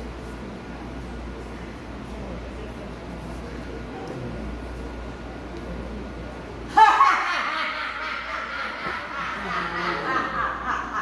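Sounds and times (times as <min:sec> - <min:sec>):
woman laughing theatrically: 0:06.7 - 0:11.0.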